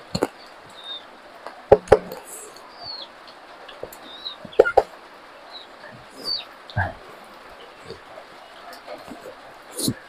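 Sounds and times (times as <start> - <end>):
bird chirp: 0.0 - 10.0
mouth smacking while eating: 7.8 - 10.0.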